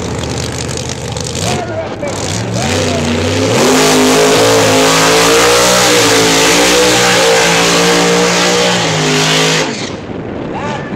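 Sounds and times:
car engine revving high: 0:01.3 - 0:09.9.

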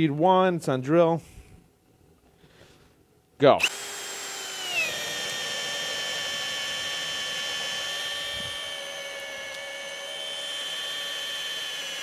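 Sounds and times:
drill boring into wood: 0:03.6 - 0:12.0.

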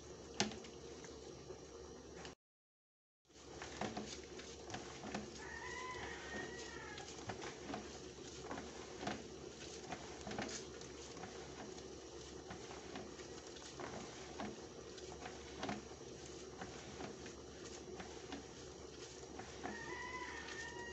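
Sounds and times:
steady low hum: 0:06.0 - 0:19.8.

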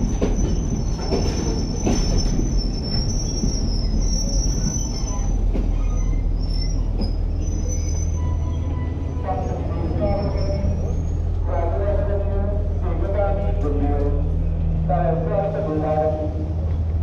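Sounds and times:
train coaches rumbling: 0:00.0 - 0:17.0
high metallic squeal: 0:00.4 - 0:11.2.

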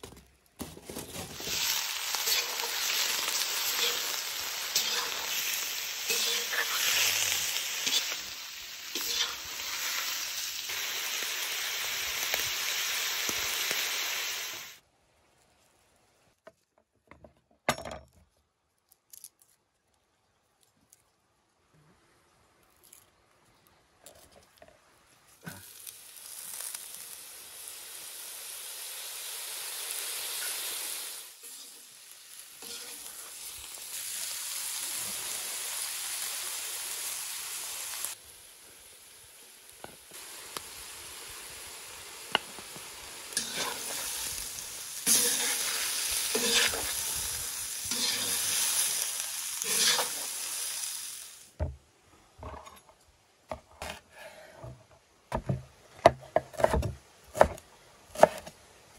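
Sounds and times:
liver sizzling in a pot: 0:01.3 - 0:14.8, 0:25.4 - 0:51.5.

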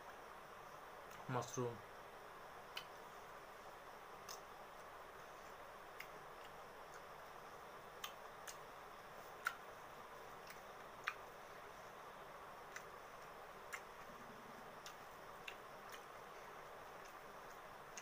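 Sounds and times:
steady low hiss: 0:00.0 - 0:18.0
chewing clicks and smacks: 0:02.7 - 0:03.0, 0:04.2 - 0:04.9, 0:05.9 - 0:07.2, 0:07.9 - 0:09.7, 0:10.3 - 0:11.3, 0:12.6 - 0:14.2, 0:14.8 - 0:16.3, 0:16.9 - 0:18.0.

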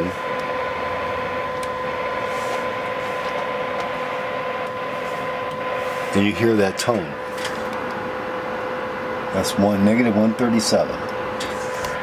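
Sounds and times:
radio hiss: 0:02.0 - 0:07.7.

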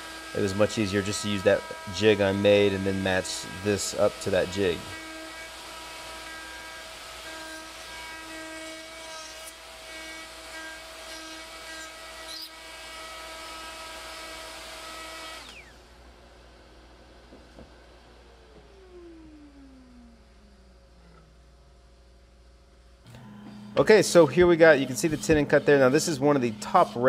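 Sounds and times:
router whining while cutting wood: 0:00.0 - 0:15.9, 0:18.2 - 0:20.5, 0:23.1 - 0:27.0
quiet hum: 0:17.0 - 0:27.0.

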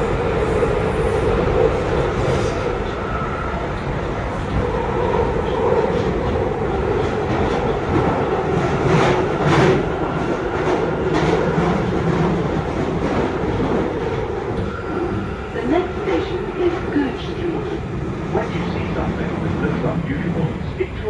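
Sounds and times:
train rumble in tunnel: 0:00.0 - 0:21.0.

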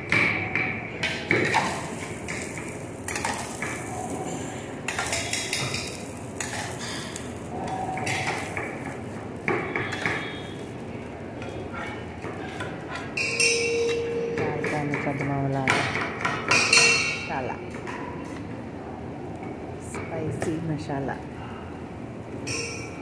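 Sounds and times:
ladle tapping on griddle: 0:00.1 - 0:10.8
oil hissing on griddle: 0:01.5 - 0:13.2.

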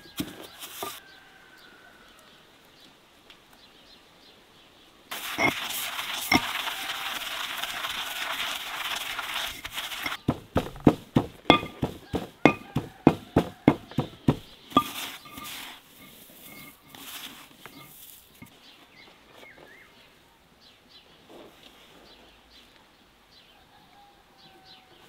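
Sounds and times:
dry rustling of herbs: 0:00.0 - 0:01.1, 0:05.1 - 0:19.8
pestle pounding in stone mortar: 0:05.1 - 0:15.7.

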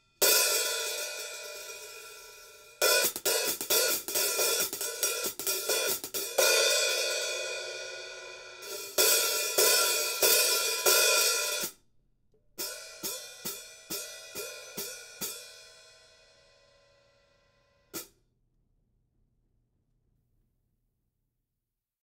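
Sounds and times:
hi-hats struck open: 0:00.2 - 0:07.2, 0:17.9 - 0:18.2.

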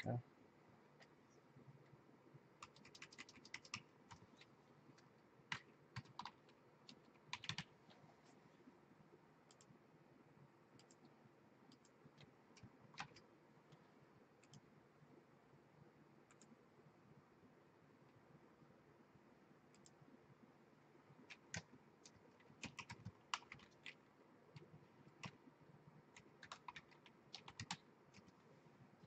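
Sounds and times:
faint keyboard typing: 0:00.9 - 0:08.5, 0:09.1 - 0:09.8, 0:10.7 - 0:14.8, 0:16.1 - 0:16.7, 0:19.6 - 0:20.1, 0:21.0 - 0:29.0.

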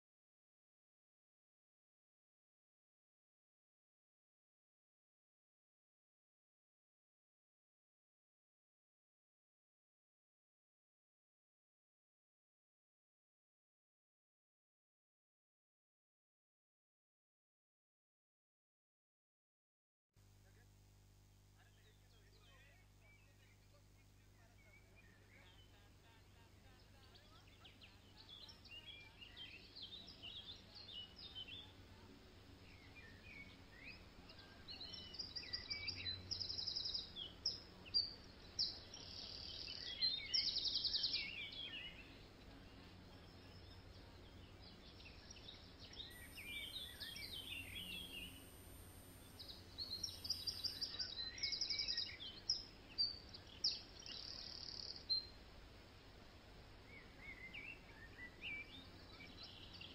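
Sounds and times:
faint outdoor background noise: 0:20.2 - 0:59.9
small birds chirping and trilling: 0:21.6 - 0:59.9.

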